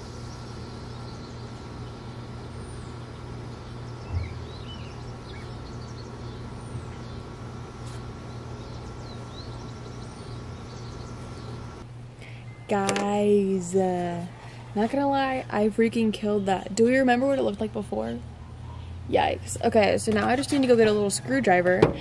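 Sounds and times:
insect drone: 0.0s - 11.8s
low hum: 0.0s - 22.0s.

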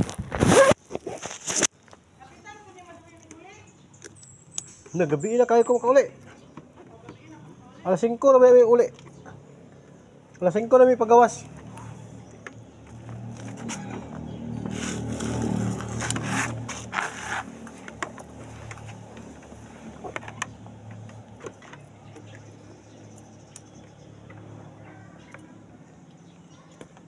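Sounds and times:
motorcycle engine idling: 9.0s - 26.4s.

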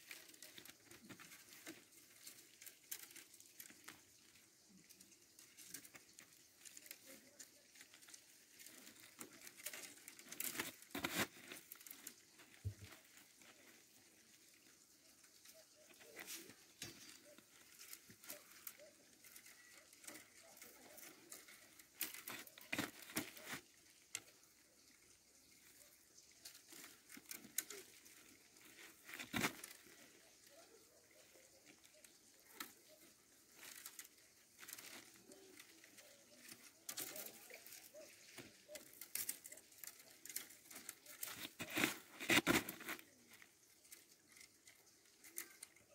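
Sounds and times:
cane strips rustling and scraping: 0.0s - 45.9s
stiff spokes clicking: 0.0s - 45.9s.

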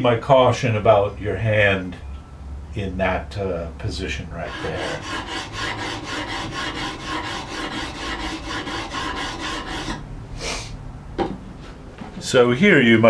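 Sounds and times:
sharpening plate rasping on steel: 4.4s - 10.0s.

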